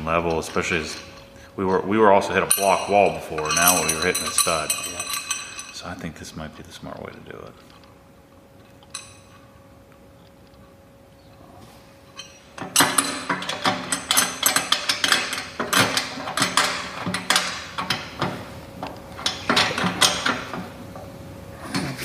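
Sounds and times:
faint steady hum: 0:00.0 - 0:22.0
metal hardware clattering: 0:00.2 - 0:05.9, 0:08.8 - 0:09.4, 0:12.2 - 0:20.7.

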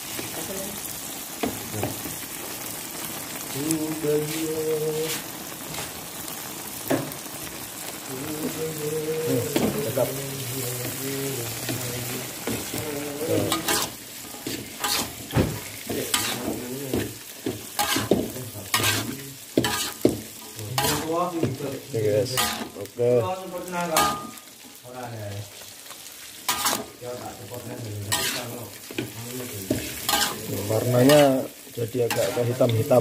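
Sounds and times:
food sizzling: 0:00.0 - 0:33.0
metal spatula scraping a wok: 0:12.4 - 0:21.2, 0:22.3 - 0:22.8, 0:24.0 - 0:24.4, 0:26.4 - 0:27.0, 0:28.0 - 0:31.3, 0:32.1 - 0:32.7.

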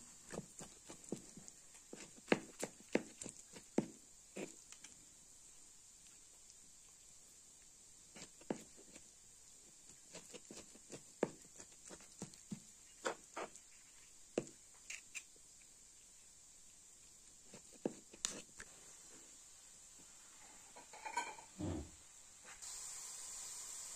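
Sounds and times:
faint steady hiss: 0:00.0 - 0:23.9.

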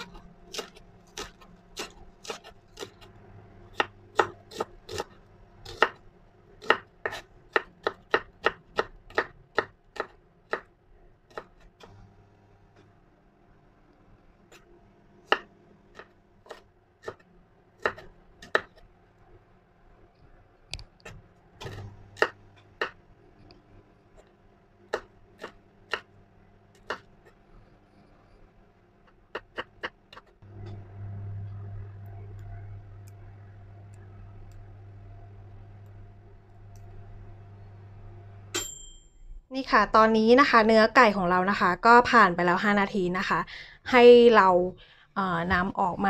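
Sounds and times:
knife chopping on wooden board: 0:00.0 - 0:03.0, 0:03.8 - 0:05.1, 0:05.7 - 0:06.0, 0:06.6 - 0:10.7
microwave oven humming: 0:00.0 - 0:10.0, 0:10.7 - 0:29.3, 0:30.4 - 0:39.5.

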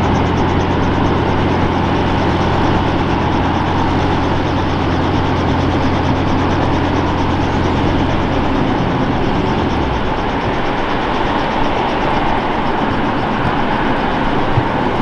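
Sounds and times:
low hum: 0:00.0 - 0:15.0
mechanical running noise: 0:00.0 - 0:15.0.

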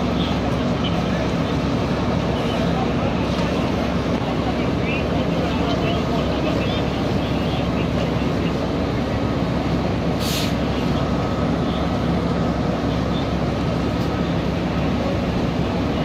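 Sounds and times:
diesel engine rumbling: 0:00.0 - 0:16.0
brief hiss: 0:10.2 - 0:10.7.

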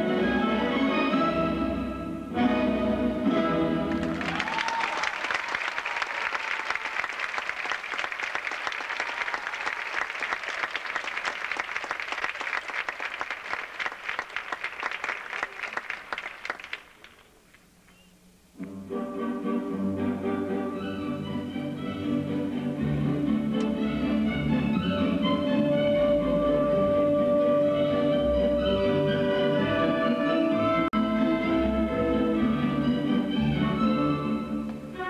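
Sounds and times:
orchestral music: 0:00.0 - 0:04.4, 0:18.6 - 0:35.0
audience applauding: 0:03.9 - 0:17.3.

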